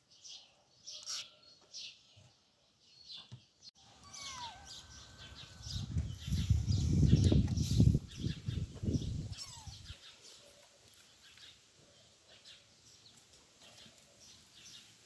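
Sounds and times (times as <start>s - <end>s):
faint bird chirps: 3.0s - 12.6s.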